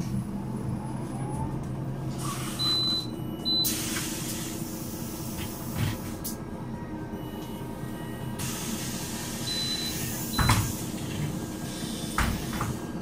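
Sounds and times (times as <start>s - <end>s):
diesel bus engine idling: 0.0s - 13.0s
air hiss: 8.4s - 12.8s.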